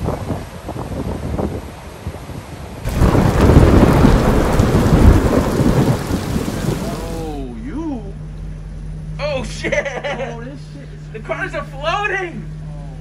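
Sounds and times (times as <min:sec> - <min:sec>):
wind: 0:00.0 - 0:13.0
rolling thunder: 0:02.8 - 0:07.3
heavy rain: 0:02.8 - 0:07.5
surf: 0:02.9 - 0:07.5.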